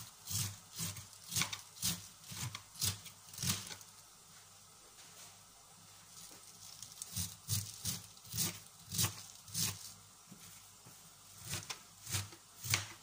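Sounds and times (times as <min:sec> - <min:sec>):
knife chopping cabbage: 0:00.0 - 0:03.8, 0:06.6 - 0:10.0, 0:11.4 - 0:13.0.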